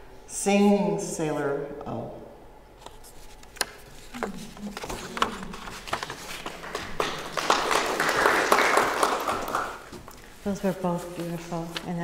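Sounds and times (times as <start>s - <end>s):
audience clapping: 5.2s - 10.1s.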